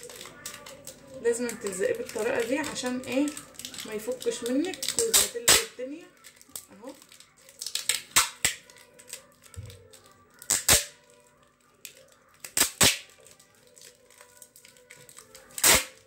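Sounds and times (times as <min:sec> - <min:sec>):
tape ripping off roll: 0:07.5 - 0:11.0, 0:12.4 - 0:16.0.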